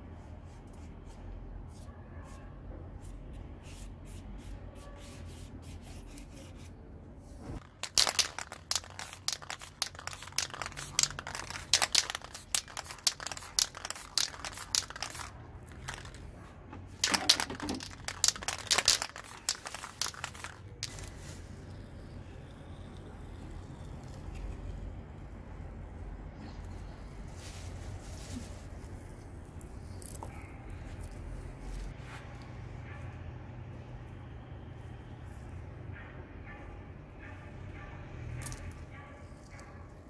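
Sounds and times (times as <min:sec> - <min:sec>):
paper crumpling: 0:07.6 - 0:16.3, 0:17.0 - 0:21.3.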